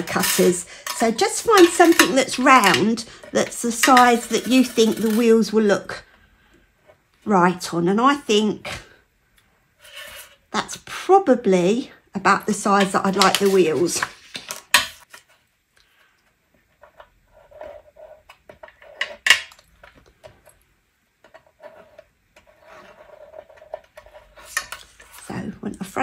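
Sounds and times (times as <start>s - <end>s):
card sliding and scraping: 9.8s - 10.4s.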